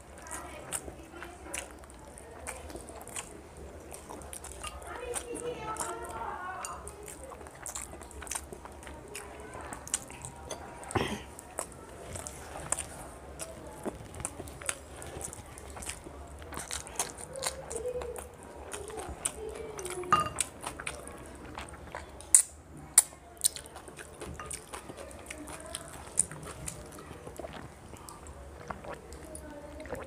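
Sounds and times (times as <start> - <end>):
chewing mouth clicks: 0.2 - 6.1, 6.7 - 30.0.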